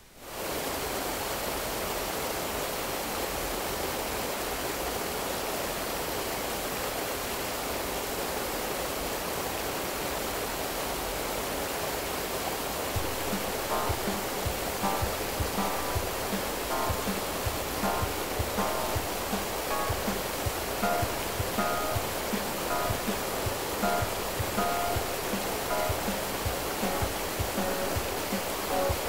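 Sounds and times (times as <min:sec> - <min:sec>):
steady rushing noise: 0:12.5 - 0:29.0
faint musical notes: 0:13.0 - 0:29.0.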